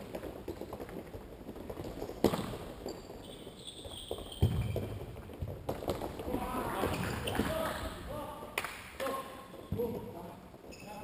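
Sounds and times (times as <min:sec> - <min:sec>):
running footsteps on court: 0:00.0 - 0:07.4
shoe squeaks: 0:02.8 - 0:05.0, 0:10.6 - 0:11.0.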